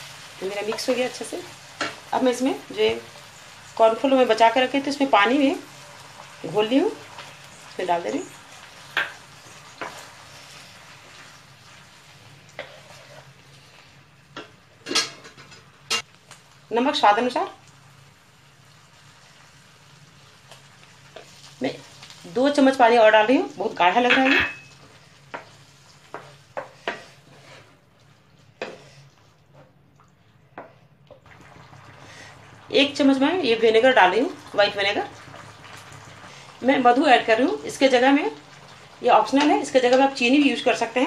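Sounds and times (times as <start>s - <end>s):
sauce sizzling in a pan: 0.0s - 14.9s, 15.6s - 29.4s, 30.2s - 41.0s
spatula stirring sauce in pan: 5.6s - 14.5s, 24.8s - 29.8s.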